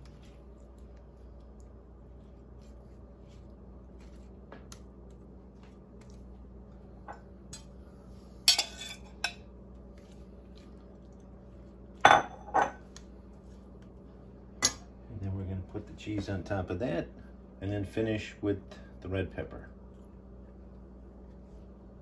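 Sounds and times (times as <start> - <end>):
knife scraping against bowl: 8.5 - 9.4.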